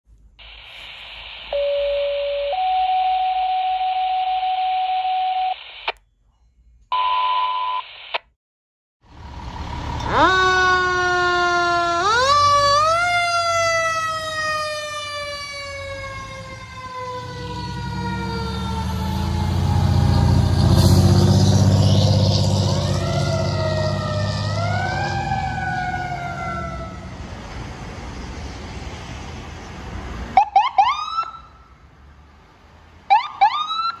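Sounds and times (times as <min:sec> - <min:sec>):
dispatch alert tones: 0:00.4 - 0:05.9
fire siren winding: 0:10.0 - 0:19.7.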